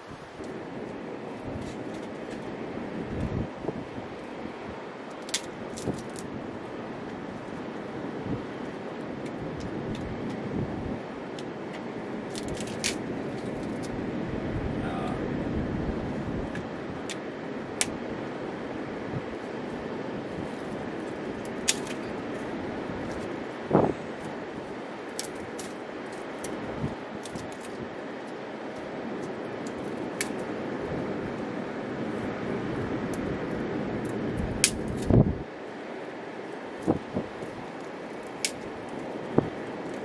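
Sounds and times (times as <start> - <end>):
ocean surf: 0.0 - 40.0
wind: 0.0 - 40.0
sticks cracking: 5.1 - 6.3, 12.3 - 14.0, 21.4 - 22.2, 25.1 - 26.6, 34.0 - 35.2, 36.8 - 39.0
twigs snapping by hand: 5.1 - 6.4, 11.4 - 14.0, 21.4 - 22.4, 25.1 - 30.5, 33.1 - 35.3, 36.8 - 40.0.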